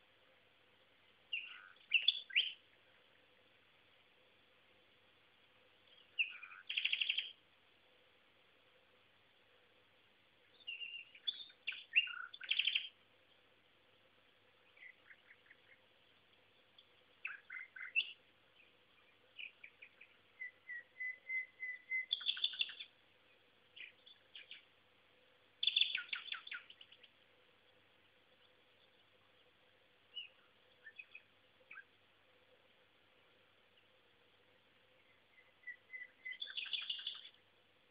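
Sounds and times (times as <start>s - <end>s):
nightingale singing: 1.0s - 3.0s, 5.8s - 7.4s, 10.4s - 13.0s, 14.5s - 24.8s, 25.5s - 32.0s, 34.6s - 37.5s.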